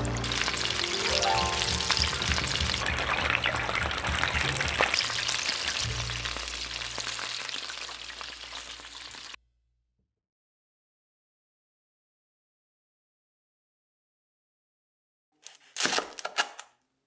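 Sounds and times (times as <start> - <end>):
oil sizzling while deep-frying: 0.0 - 9.4.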